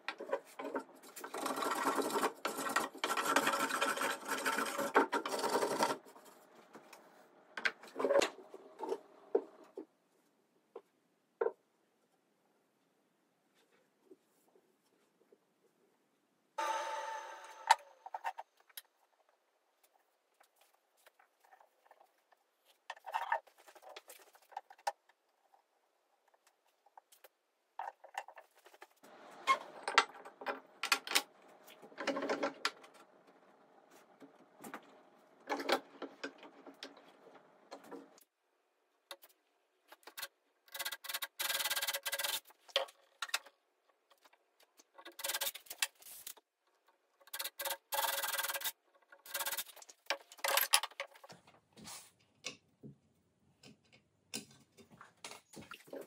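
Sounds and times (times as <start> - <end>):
wood and tools clattering: 0.0 - 7.0, 27.8 - 38.2, 40.0 - 52.7
power drill running: 16.6 - 18.0.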